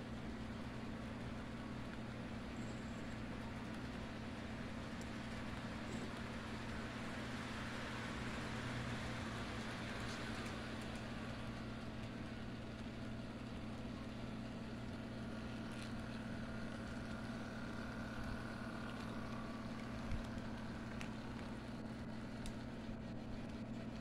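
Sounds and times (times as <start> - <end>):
model train electric hum: 0.0 - 24.0
wheels rolling on rails: 3.4 - 14.0.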